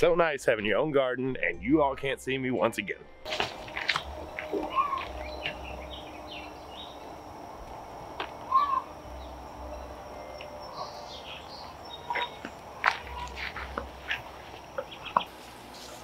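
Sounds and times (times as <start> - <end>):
steady outdoor hiss: 0.0 - 16.0
birds chirping: 3.5 - 16.0.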